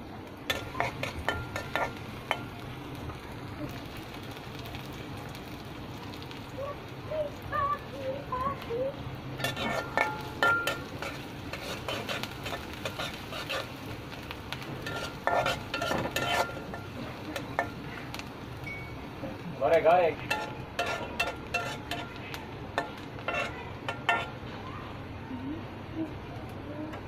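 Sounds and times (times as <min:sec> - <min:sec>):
onions sizzling in oil: 0:00.0 - 0:27.0
metal spatula scraping pan: 0:00.5 - 0:02.5, 0:09.4 - 0:13.8, 0:14.8 - 0:17.8, 0:20.2 - 0:24.4.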